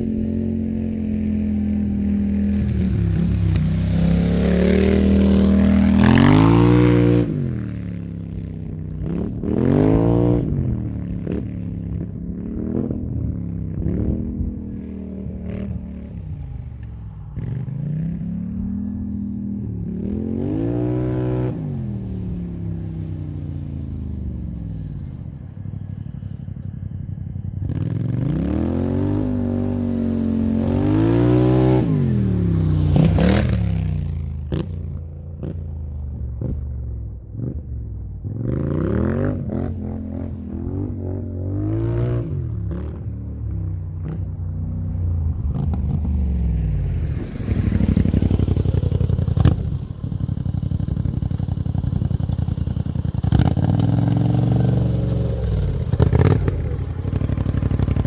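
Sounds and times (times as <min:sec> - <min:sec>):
atv engine revving: 0:00.0 - 0:08.3, 0:08.9 - 0:13.1, 0:27.6 - 0:35.7, 0:37.4 - 0:58.0.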